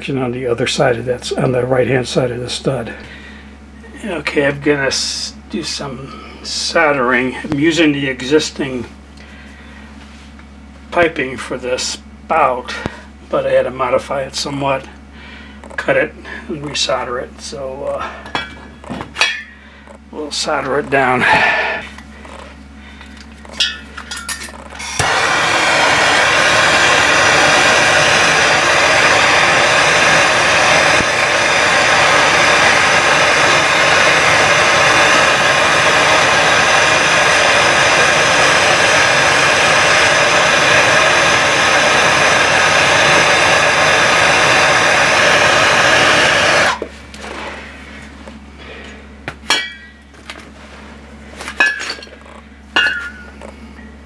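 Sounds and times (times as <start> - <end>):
gas torch hissing: 20.2 - 22.5, 24.7 - 47.6
torch igniter clicks: 24.4 - 27.6.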